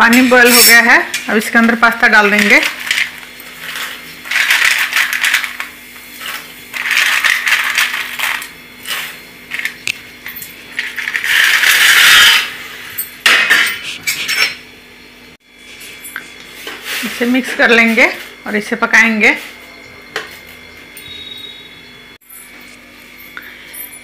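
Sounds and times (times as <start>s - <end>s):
dry pasta rattling into metal pot: 3.7s - 9.7s.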